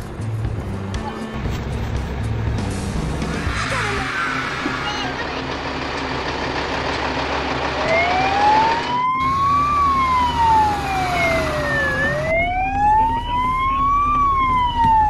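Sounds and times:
fire truck siren wailing: 0:07.1 - 0:15.0.

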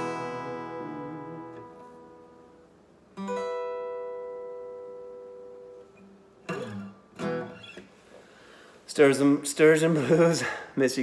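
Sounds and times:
acoustic guitar chord: 0:00.0 - 0:07.6.

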